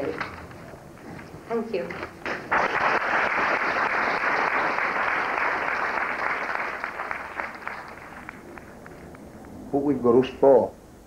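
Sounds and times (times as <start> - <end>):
audience applauding: 2.2 - 9.1.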